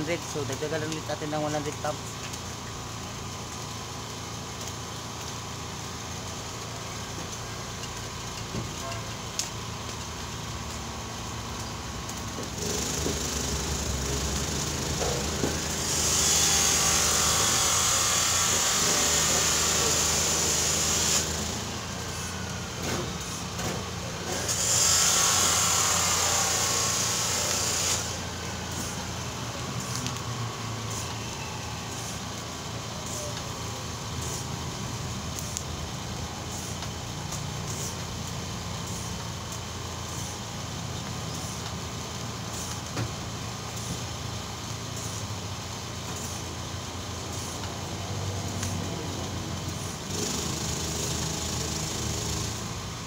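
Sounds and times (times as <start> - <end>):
loud rushing hiss: 0.0 - 2.0, 11.8 - 53.0
hand pump air hiss: 14.8 - 29.0, 30.8 - 31.2, 34.2 - 34.6, 35.4 - 36.8, 37.5 - 38.1, 38.8 - 39.2, 40.0 - 40.4, 42.4 - 42.8, 44.9 - 45.3, 46.1 - 46.4, 47.2 - 47.9, 49.8 - 52.7.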